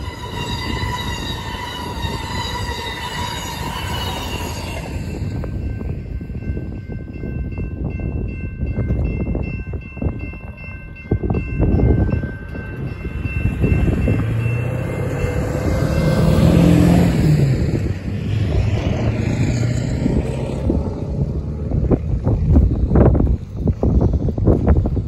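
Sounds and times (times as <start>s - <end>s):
railroad crossing bell ringing: 0.0s - 22.0s
wind noise on microphone: 0.0s - 25.0s
passing road vehicle: 12.4s - 25.0s.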